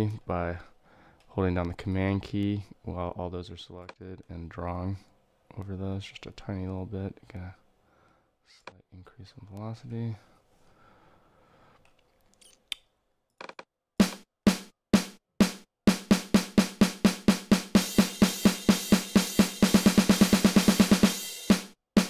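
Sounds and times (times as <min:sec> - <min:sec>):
snare drum hits: 0:14.0 - 0:22.0
crash cymbal: 0:17.8 - 0:21.7.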